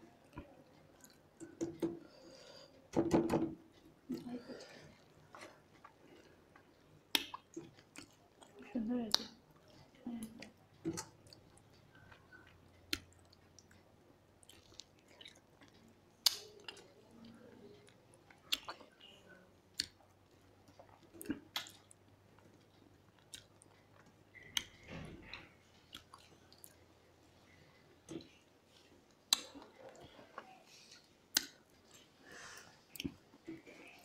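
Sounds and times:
people chewing: 0.0 - 2.9, 3.6 - 34.0.

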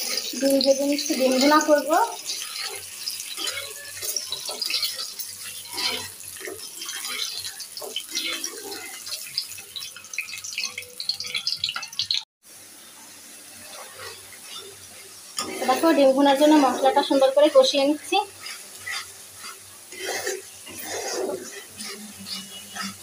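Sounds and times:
tap water running and splashing: 0.0 - 12.3.

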